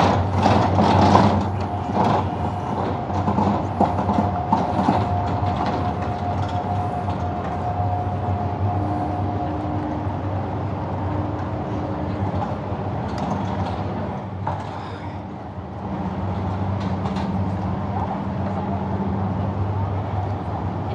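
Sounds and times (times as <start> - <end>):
engine humming: 0.0 - 20.9.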